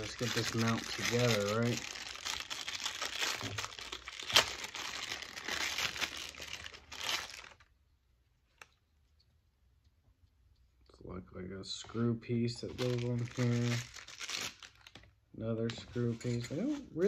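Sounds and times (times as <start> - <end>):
plastic bag crinkling: 0.0 - 7.7, 12.7 - 15.0.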